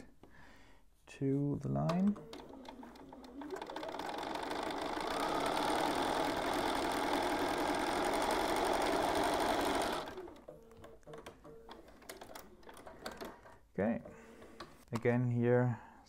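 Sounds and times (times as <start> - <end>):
sewing machine stitching: 1.9 - 13.6.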